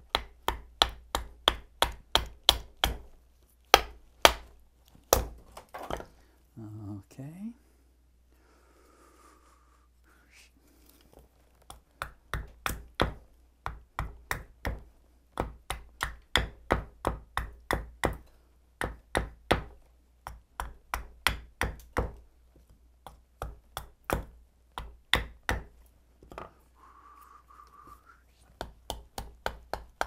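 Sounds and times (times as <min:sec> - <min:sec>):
hatchet chopping wood: 0:00.0 - 0:03.1, 0:03.7 - 0:06.0, 0:11.7 - 0:22.2, 0:23.0 - 0:25.8, 0:28.6 - 0:30.0.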